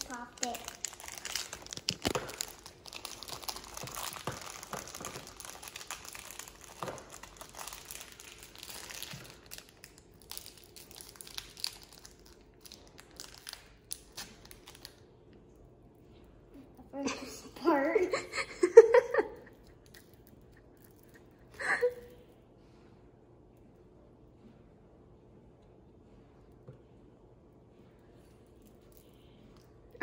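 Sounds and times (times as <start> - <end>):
plastic wrappers crinkling: 0.0 - 15.1.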